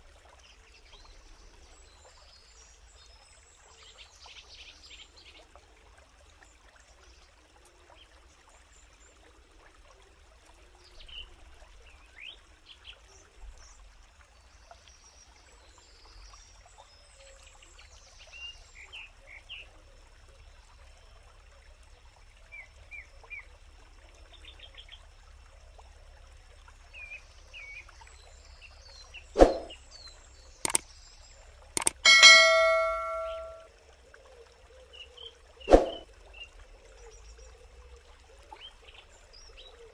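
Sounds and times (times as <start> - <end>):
forest background: 27.0 - 33.6, 34.3 - 36.0
bell ding: 31.8 - 33.6
birds chirping: 31.8 - 33.6
mouse clicks: 31.8 - 33.6.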